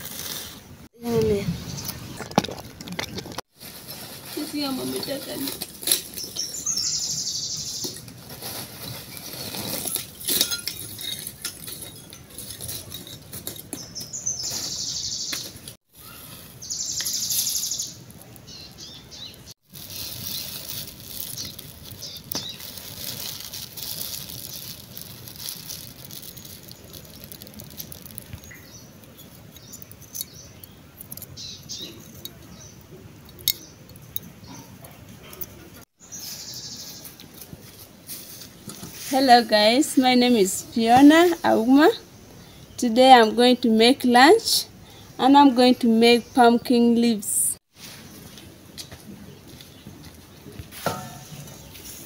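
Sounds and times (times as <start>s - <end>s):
plastic bag crackling: 2.2s - 6.4s, 8.1s - 10.4s, 19.6s - 30.1s
charcoal clinking against metal: 9.0s - 14.2s, 50.8s - 51.8s.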